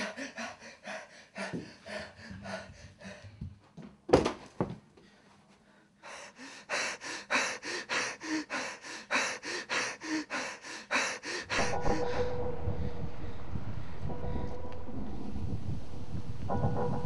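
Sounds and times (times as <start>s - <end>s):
man panting: 0.0s - 3.6s, 5.1s - 13.4s
steady low rumble: 11.4s - 17.0s.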